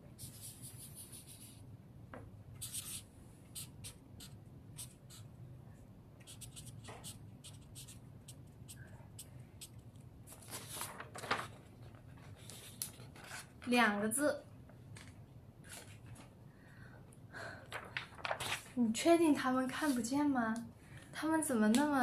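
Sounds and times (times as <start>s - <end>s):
marker pen scratching on paper: 0.2s - 1.6s, 2.6s - 5.3s, 6.2s - 9.8s
paper rustling: 10.3s - 13.7s, 15.0s - 16.3s, 17.7s - 18.8s.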